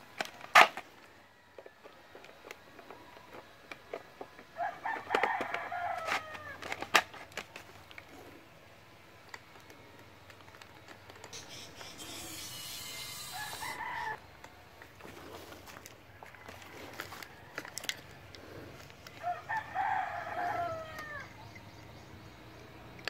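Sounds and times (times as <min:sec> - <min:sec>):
clicks and knocks handling plastic gun: 0:00.0 - 0:08.2, 0:09.2 - 0:11.4, 0:14.4 - 0:19.7
rooster crowing: 0:04.5 - 0:06.7, 0:12.0 - 0:14.3, 0:16.1 - 0:18.2, 0:19.1 - 0:21.4
steady hiss: 0:11.2 - 0:14.4.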